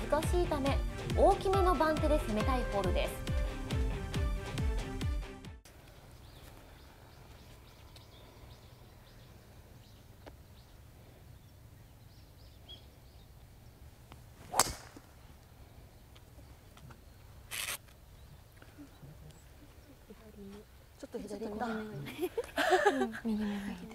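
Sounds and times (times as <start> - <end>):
faint outdoor ambience: 5.6 - 23.9
golf driver striking ball: 14.5 - 15.1.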